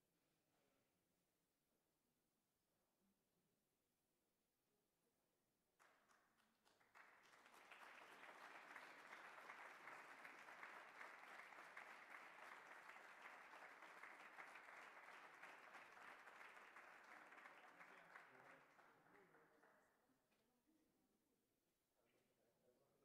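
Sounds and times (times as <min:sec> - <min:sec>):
audience applauding: 0:05.8 - 0:19.4.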